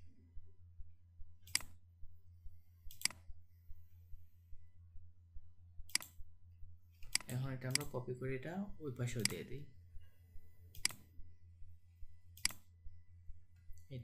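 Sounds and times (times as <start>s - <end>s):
low steady hum: 0.0s - 14.0s
computer mouse clicks: 1.4s - 1.8s, 2.9s - 3.3s, 5.9s - 6.2s, 7.0s - 7.9s, 9.2s - 9.4s, 10.7s - 11.1s, 12.3s - 12.7s.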